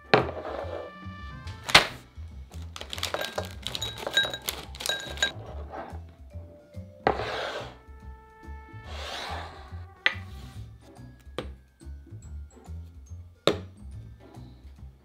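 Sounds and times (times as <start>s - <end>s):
background music with steady beat: 0.0s - 15.0s
bowl sliding across wood: 0.1s - 1.0s, 5.3s - 6.2s, 7.0s - 8.0s, 8.7s - 11.1s
potato cubes clattering into glass: 2.6s - 5.4s
glass bowl knocking on wood: 3.2s - 5.4s.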